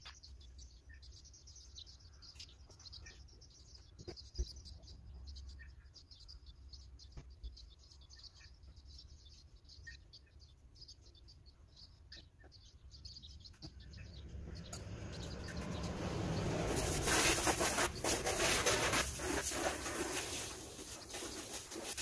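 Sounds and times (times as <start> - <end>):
faint bird chirps: 0.0 - 22.0
garden hose spraying water: 15.6 - 22.0.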